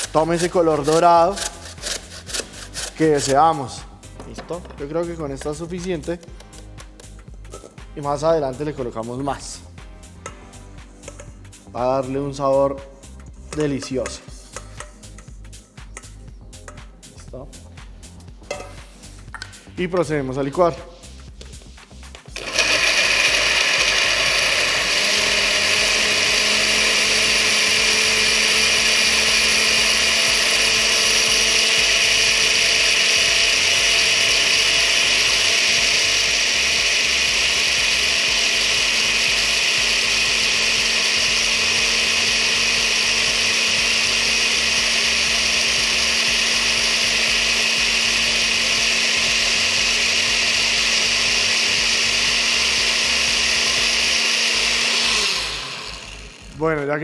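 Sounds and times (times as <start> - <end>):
blender motor running: 0.0 - 3.3, 22.2 - 56.9.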